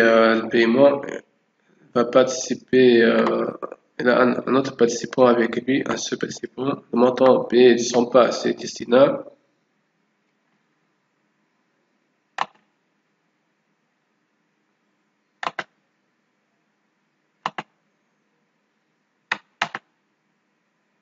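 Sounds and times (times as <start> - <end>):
computer mouse button clicks: 12.4 - 12.7.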